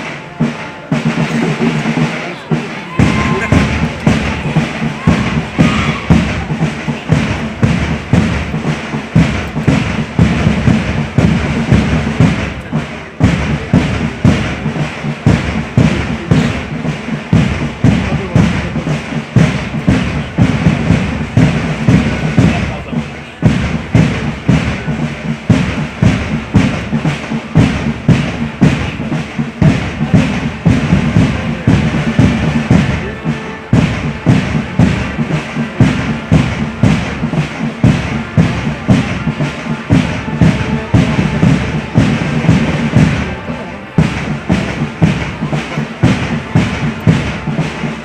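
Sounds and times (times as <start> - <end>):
marching drums beating: 0.0 - 48.0.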